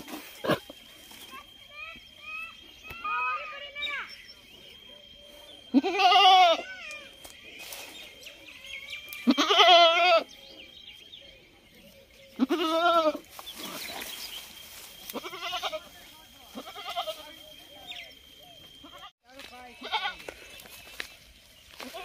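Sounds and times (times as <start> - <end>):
goat bleating: 5.7 - 6.6, 9.2 - 10.3, 12.4 - 13.7, 15.1 - 17.2, 19.8 - 20.2.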